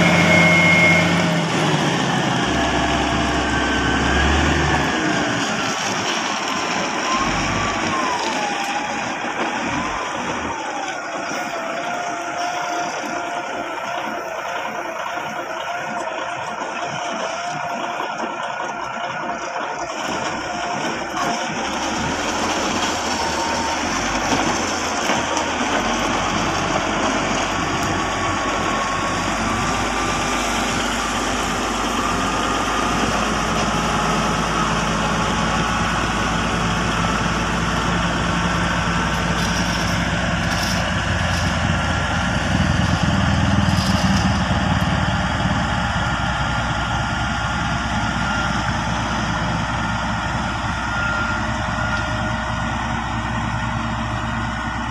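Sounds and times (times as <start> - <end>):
diesel engine running: 0.0 - 54.9
blade grading gravel: 2.8 - 9.6, 20.0 - 46.1.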